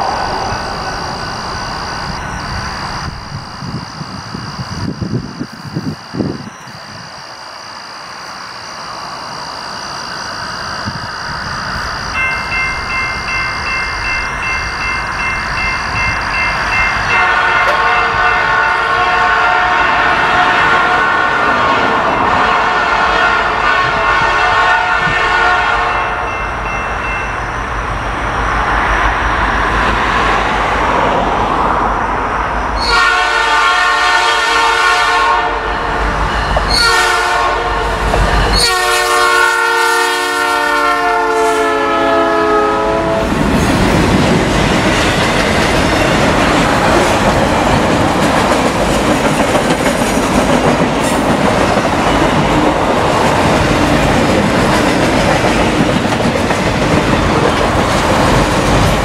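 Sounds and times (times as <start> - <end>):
freight train rumbling by: 0.0 - 59.0
train air horn blasts: 17.1 - 21.6, 22.2 - 26.4, 32.8 - 36.0, 36.7 - 43.4
wheels clacking over rail joints: 43.4 - 59.0.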